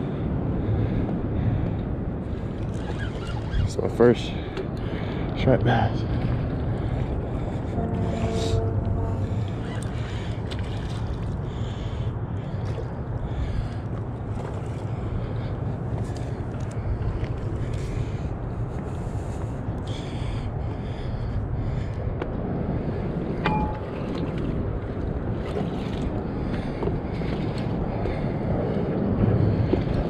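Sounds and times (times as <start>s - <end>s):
wind rumbling on microphone: 0.0s - 30.0s.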